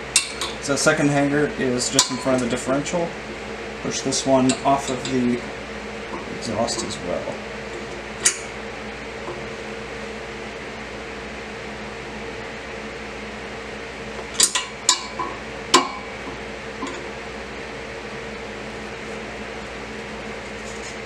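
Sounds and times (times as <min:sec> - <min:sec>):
fan hum: 0:00.0 - 0:21.0
metallic clinks of exhaust pipe: 0:04.4 - 0:05.3.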